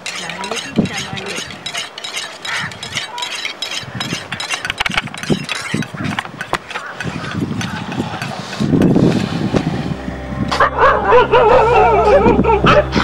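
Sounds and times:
sharp irregular clicks and knocks: 0.0 - 9.0
low rumble: 8.7 - 13.0.

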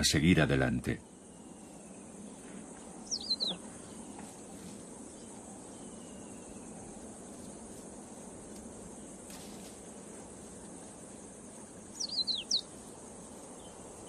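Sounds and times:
high-pitched insect buzz: 3.0 - 4.0.

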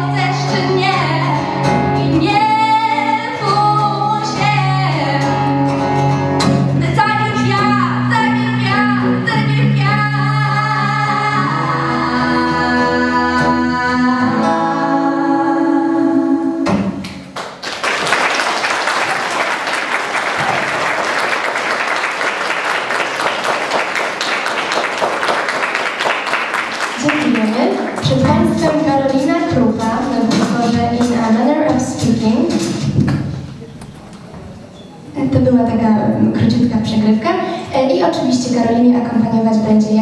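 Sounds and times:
woman singing: 0.0 - 5.4, 6.8 - 16.8, 27.0 - 32.7
guitar accompaniment: 0.0 - 17.3, 25.0 - 40.0
audience applauding: 17.3 - 28.2.

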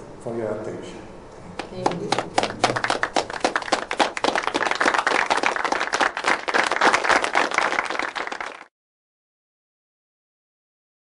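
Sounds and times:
audience applauding: 1.6 - 8.7.

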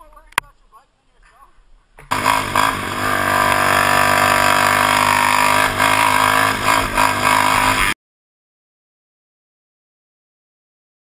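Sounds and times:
quad engine at high revs: 2.1 - 8.0.

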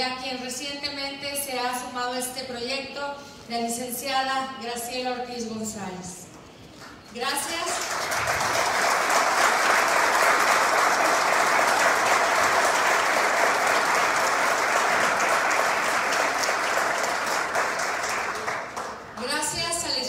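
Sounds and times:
audience applauding: 7.5 - 19.2.

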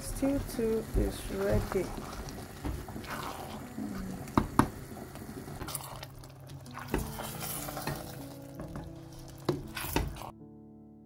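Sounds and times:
spoon stirring thick stew: 0.1 - 10.3.

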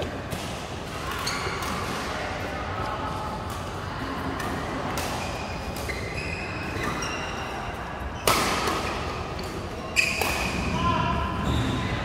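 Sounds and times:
shoes squeaking on court mat: 5.2 - 10.5
rackets hitting shuttlecock: 8.2 - 10.8.

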